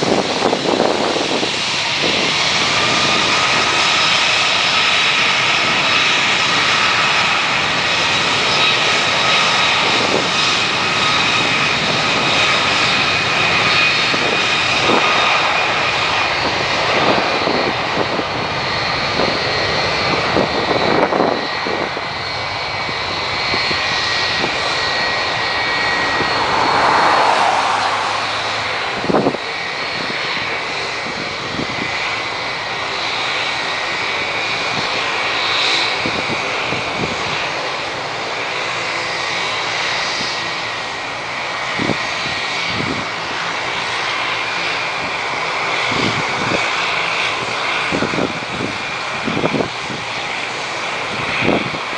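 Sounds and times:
jet roar with whining fan tones: 0.0 - 51.9.

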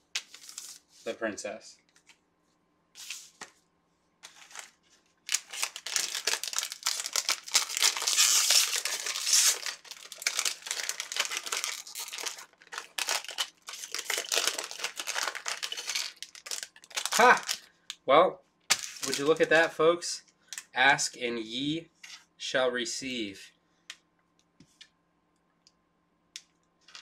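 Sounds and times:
plastic wrapper crinkling: 4.2 - 17.7, 18.7 - 19.7.

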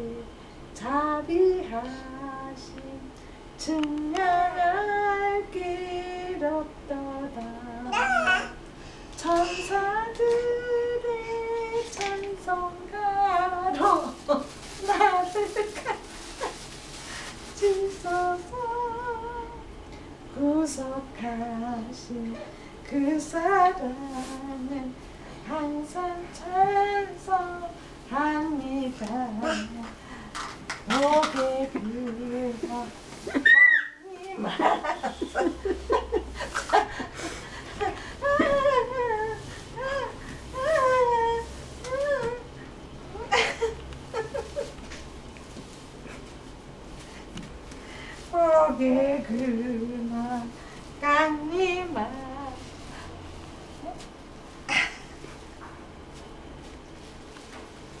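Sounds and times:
person singing slow tune: 0.0 - 8.6, 9.2 - 14.0, 17.6 - 30.2, 30.9 - 33.4, 37.2 - 43.5, 48.2 - 52.7.

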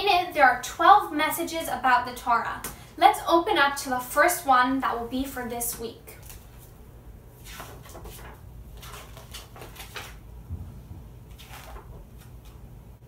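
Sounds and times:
low steady hum: 0.0 - 13.0
book pages rustling: 6.2 - 10.3, 11.1 - 12.8.

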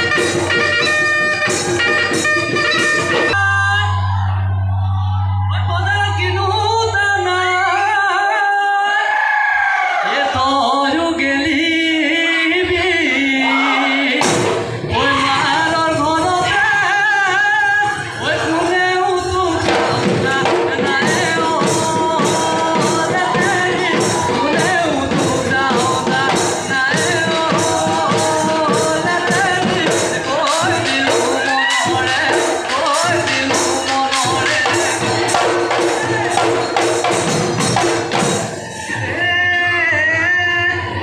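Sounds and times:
dhol drums beating: 0.0 - 3.4, 14.2 - 39.0
man singing: 0.0 - 4.8, 5.4 - 9.2, 10.0 - 41.0.

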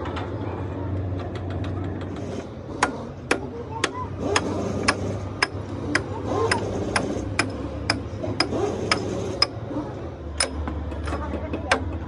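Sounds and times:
hammer striking steel: 2.8 - 9.6, 10.4 - 11.8.

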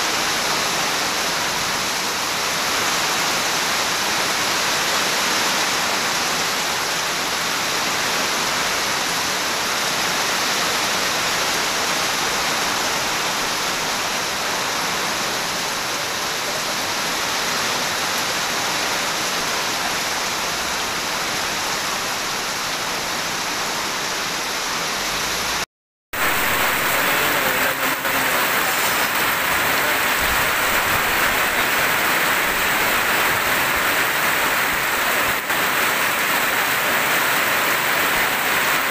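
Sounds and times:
rain drumming on corrugated roof: 0.0 - 25.0, 26.2 - 38.9
heavy rain hiss: 0.0 - 38.9
water pouring off roof: 26.2 - 38.9.

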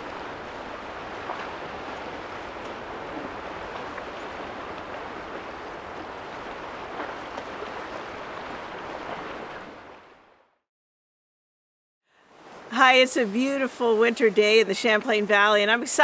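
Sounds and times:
lake water washing on rocks: 0.0 - 10.1
wind: 0.0 - 10.6, 12.1 - 16.0.

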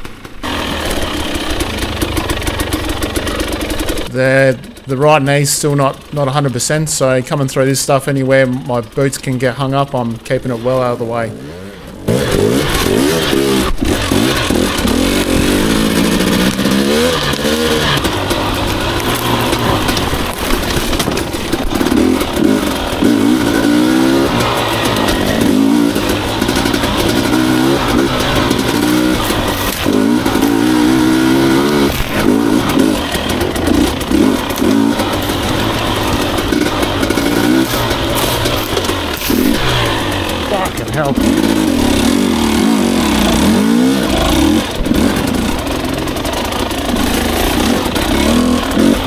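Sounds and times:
dirt bike engine revving: 0.0 - 49.0.

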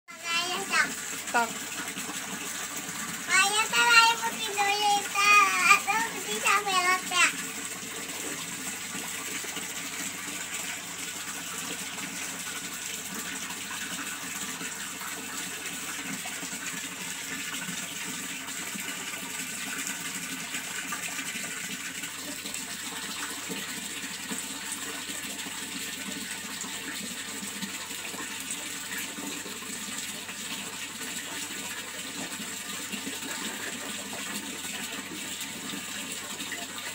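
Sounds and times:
running water rushing: 0.1 - 36.9.

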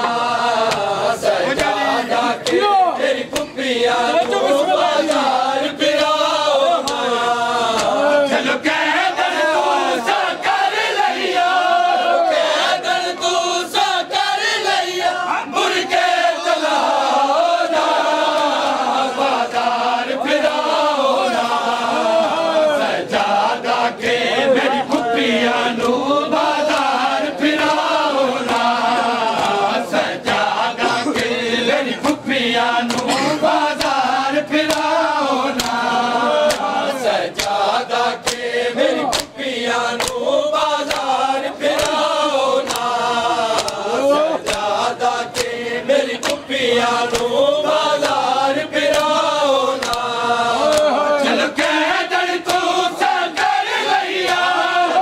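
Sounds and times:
hands slapping bare chests: 0.0 - 1.8, 2.4 - 2.7, 3.3 - 5.4, 6.8 - 8.1, 25.7 - 31.4, 32.8 - 51.7, 52.4 - 54.6
men chanting a lament: 0.0 - 55.0.

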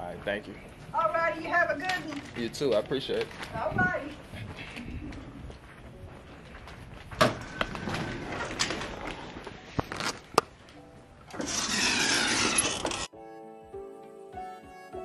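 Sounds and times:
walking noise: 0.0 - 11.0.

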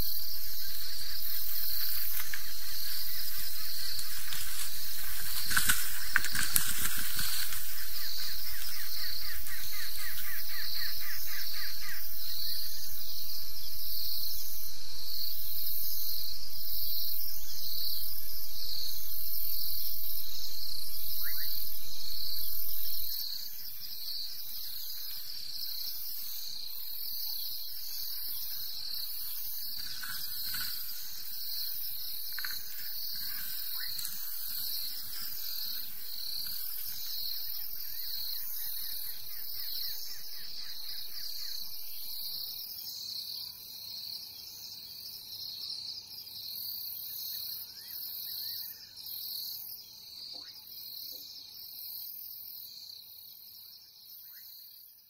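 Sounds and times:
insects buzzing in pulses: 0.0 - 42.7.

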